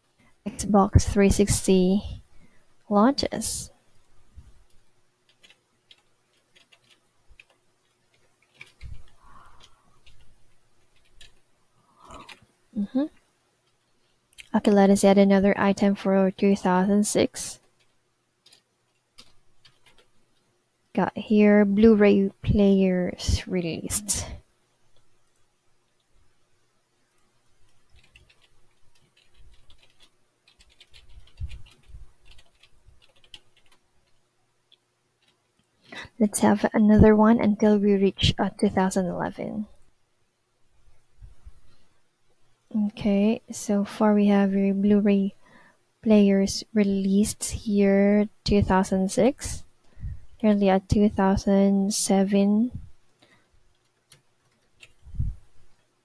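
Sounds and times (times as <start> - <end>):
computer keyboard keys clicking: 5.3 - 11.4, 17.7 - 20.1, 27.7 - 35.4, 53.7 - 55.0.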